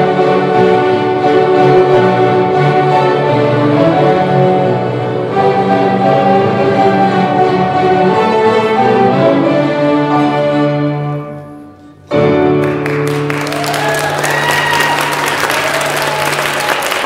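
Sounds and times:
violin ensemble with piano: 0.0 - 13.0
audience applause: 12.6 - 17.0.

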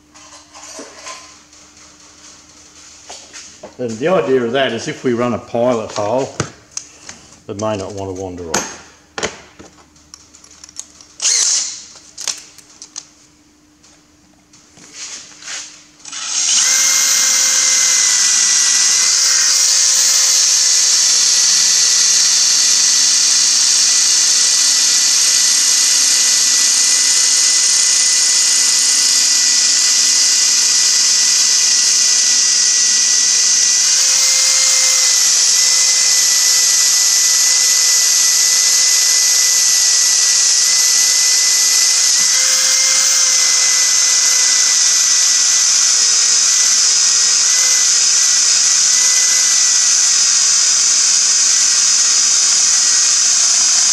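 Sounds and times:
cordless drill drilling into steel: 11.2 - 11.8, 16.0 - 53.9.

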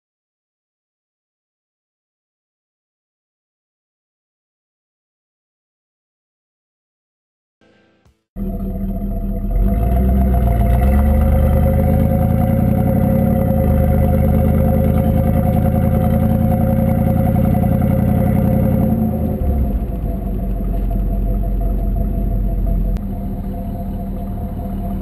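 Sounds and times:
car engine exhaust cruising: 8.4 - 25.0.

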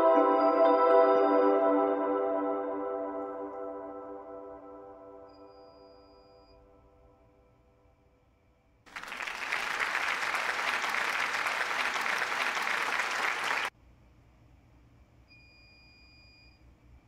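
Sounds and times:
applause: 8.9 - 13.7.

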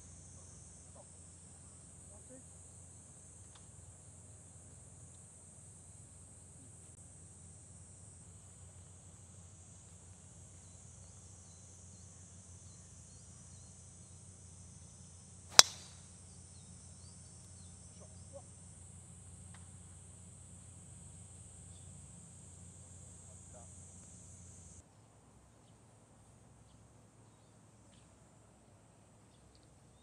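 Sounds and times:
golf club striking ball: 15.5 - 16.0.

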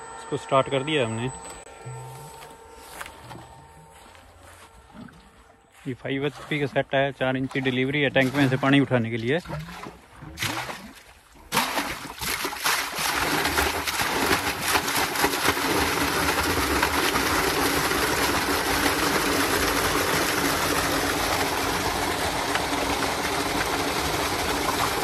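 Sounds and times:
water gushing from pump hose: 6.0 - 25.0.

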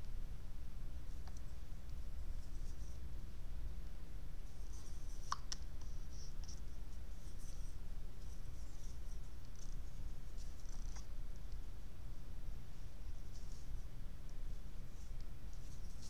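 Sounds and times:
low background rumble: 0.0 - 16.0
brush stroking over paper: 1.1 - 3.1, 4.4 - 5.2, 5.8 - 10.8, 12.6 - 16.0.

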